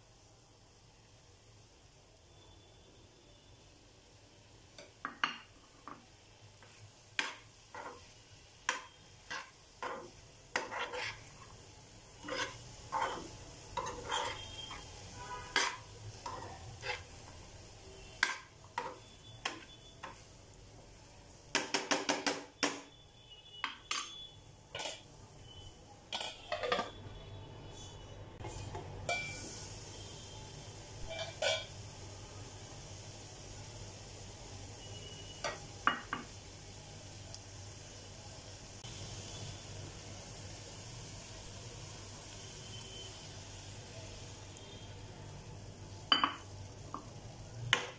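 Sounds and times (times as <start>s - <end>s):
faint sizzle: 0.0s - 47.9s
spoon tapping a pan: 4.8s - 6.0s, 6.6s - 11.2s, 15.5s - 17.0s, 18.2s - 20.2s, 21.5s - 22.9s, 23.6s - 25.0s, 26.1s - 27.0s, 29.0s - 29.5s, 35.4s - 36.4s, 46.1s - 47.1s, 47.7s - 47.9s
spoon scraping a frying pan: 6.6s - 17.4s, 18.1s - 20.3s, 23.6s - 25.1s, 26.1s - 27.0s, 31.0s - 31.8s.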